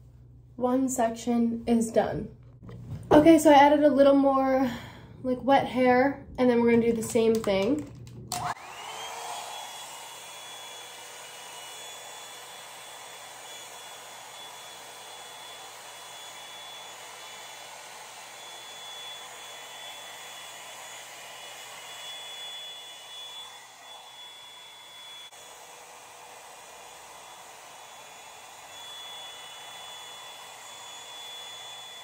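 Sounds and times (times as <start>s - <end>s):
hair dryer blowing with motor whine: 6.8s - 32.0s.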